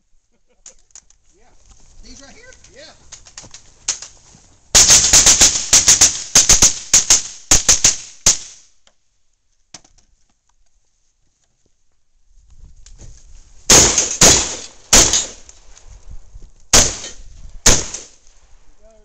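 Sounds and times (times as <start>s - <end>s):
rapid rifle shots: 4.8s - 8.6s, 13.7s - 15.4s, 16.7s - 18.2s.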